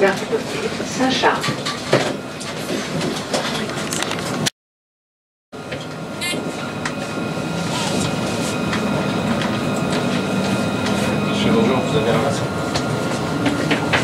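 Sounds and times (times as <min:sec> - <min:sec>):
tram rumbling on rails: 0:00.0 - 0:04.5, 0:05.6 - 0:14.0
brief high tone: 0:06.2 - 0:06.8.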